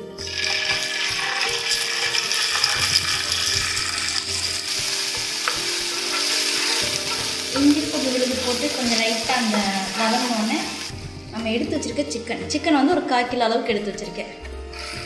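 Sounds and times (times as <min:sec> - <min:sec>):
paste sizzling in hot oil: 0:00.2 - 0:10.9
wooden spoon stirring in pan: 0:01.2 - 0:10.9.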